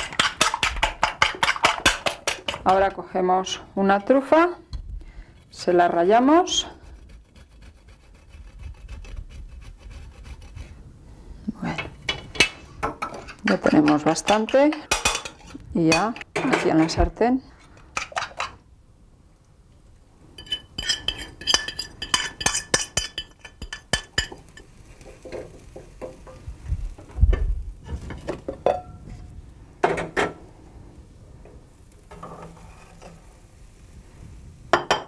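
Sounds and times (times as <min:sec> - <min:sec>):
spatula scraping eggs in pan: 0:00.0 - 0:02.8, 0:05.2 - 0:10.8, 0:20.4 - 0:26.4, 0:32.1 - 0:33.7
utensil clinking on cookware: 0:11.8 - 0:17.0, 0:20.4 - 0:24.7.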